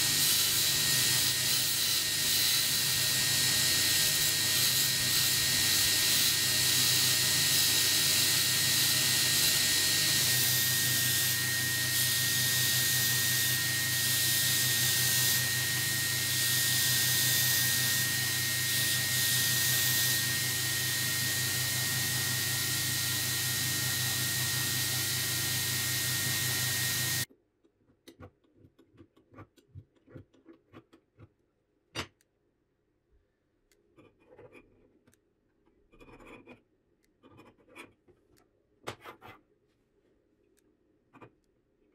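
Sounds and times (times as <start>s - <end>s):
belt grinder grinding steel: 0.0s - 27.3s.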